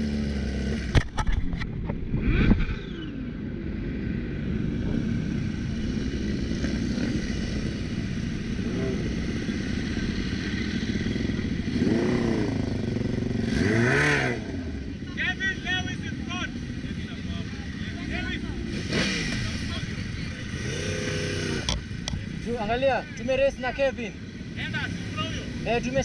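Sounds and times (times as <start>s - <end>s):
motorcycle engines running: 0.0s - 26.0s
motorcycle throttle blips: 18.6s - 22.4s.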